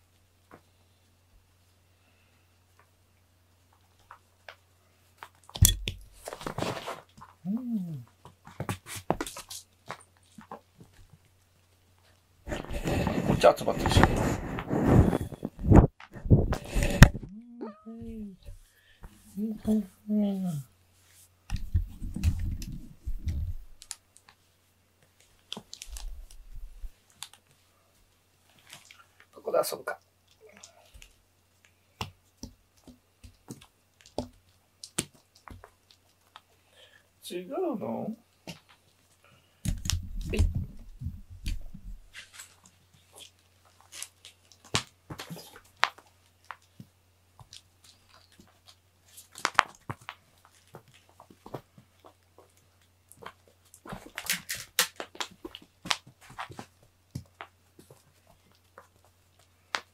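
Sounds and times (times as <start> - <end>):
cat rubbing against microphone: 12.5 - 17.3, 21.0 - 23.8
cats tapping toys on foam mat: 31.9 - 36.5.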